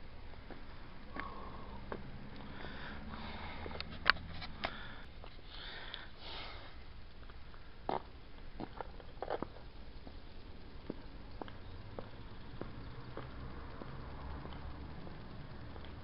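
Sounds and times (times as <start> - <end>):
breathy hiss near microphone: 0.0 - 11.3.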